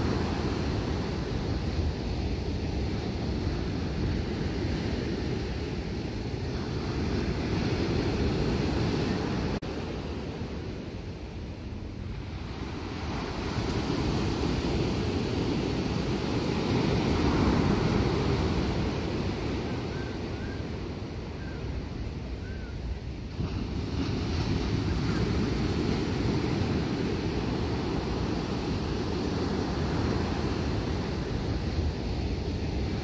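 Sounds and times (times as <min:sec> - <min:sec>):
ocean surf breaking: 0:00.0 - 0:33.0
wind buffeting microphone: 0:00.0 - 0:33.0.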